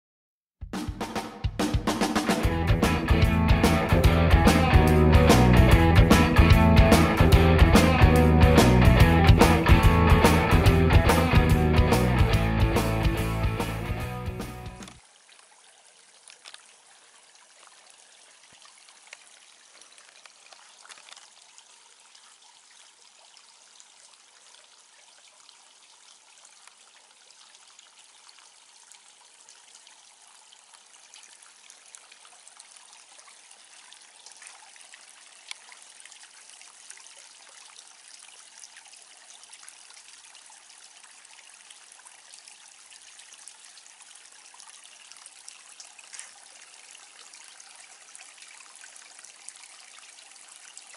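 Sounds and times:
small drips pattering: 14.8s - 50.9s
water trickling and splashing: 14.8s - 50.9s.

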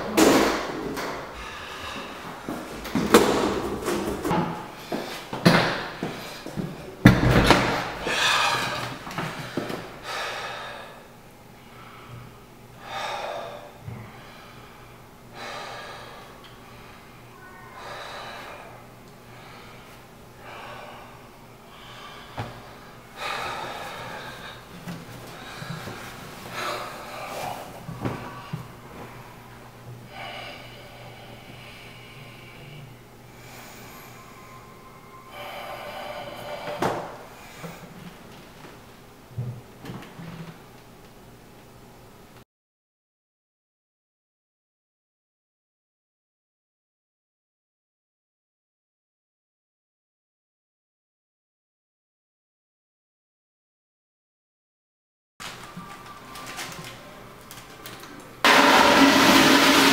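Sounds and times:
man breathing heavily through nose: 1.2s - 3.5s, 4.6s - 7.0s, 7.8s - 29.4s, 30.0s - 38.1s.

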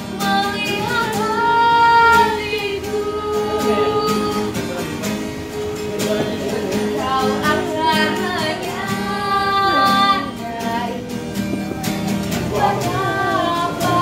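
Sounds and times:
woman singing: 0.0s - 4.7s, 6.1s - 11.2s, 12.4s - 14.0s
instrumental accompaniment with beat: 5.0s - 7.0s, 11.0s - 12.7s.

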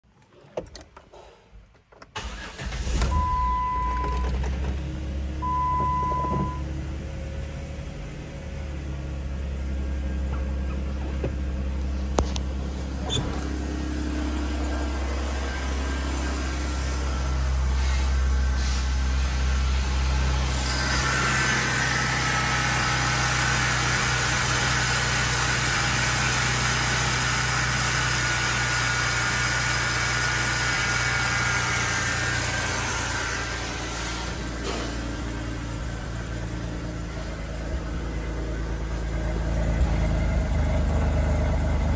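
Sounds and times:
car engine starting and idling: 0.1s - 41.9s
clicks before engine start: 1.9s - 3.2s
short dashboard beeps: 2.5s - 4.4s, 5.4s - 6.7s.

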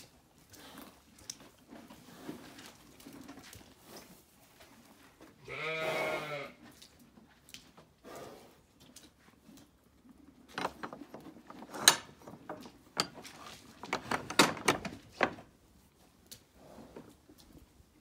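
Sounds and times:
wooden pen rails knocking and rattling: 10.5s - 15.5s.

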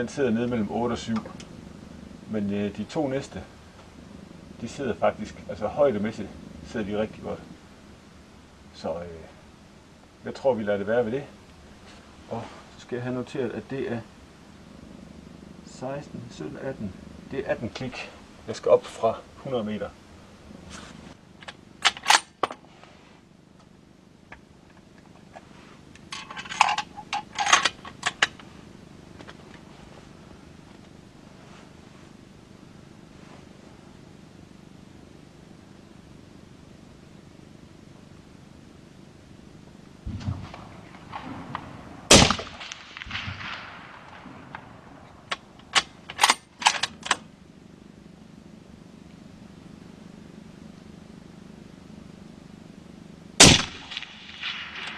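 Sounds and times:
suppressed rifle shot echoing: 40.1s - 45.1s, 53.4s - 54.9s.

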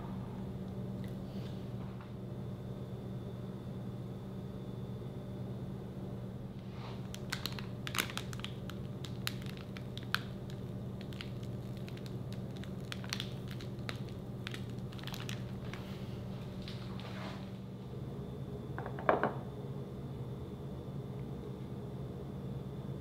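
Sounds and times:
steady low hum: 0.0s - 23.0s
slime crackling and popping: 7.1s - 15.8s.

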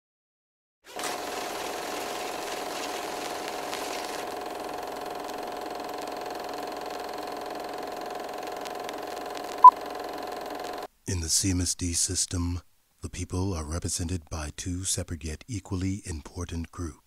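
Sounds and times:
film projector whirring: 0.9s - 10.9s.

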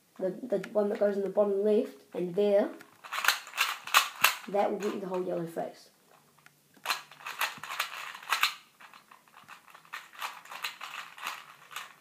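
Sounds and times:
puzzle cube clicking: 2.8s - 5.2s, 6.4s - 12.0s.

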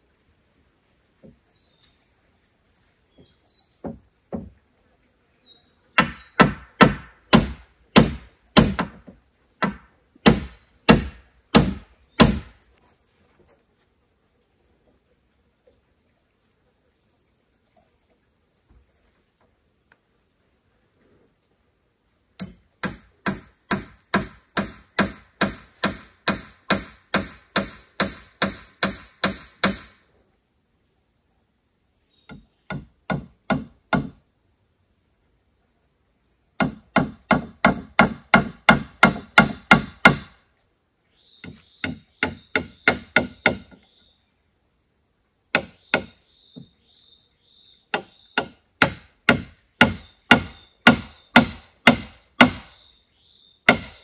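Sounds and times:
hand tool striking wood: 6.0s - 12.5s, 22.4s - 30.0s, 32.3s - 34.2s, 36.6s - 40.3s, 41.4s - 43.8s, 47.9s - 52.7s, 53.7s - 54.0s.

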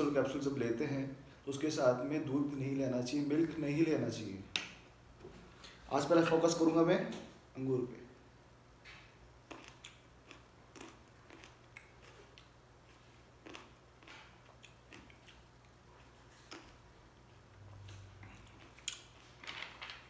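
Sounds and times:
person chewing grapes: 8.8s - 19.5s.

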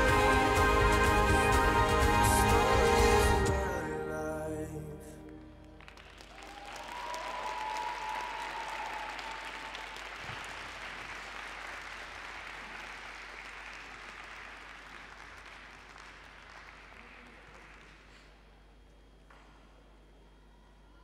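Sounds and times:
audience applauding: 0.0s - 3.6s, 5.3s - 18.5s.

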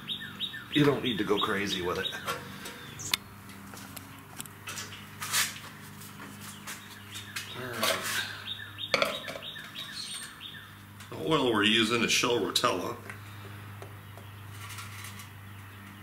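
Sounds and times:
bird chirps: 0.0s - 3.2s, 6.4s - 11.2s.

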